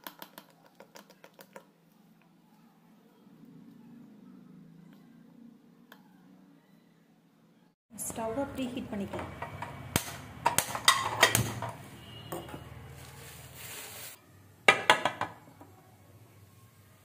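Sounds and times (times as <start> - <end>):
metal lid clatter: 10.4 - 11.8.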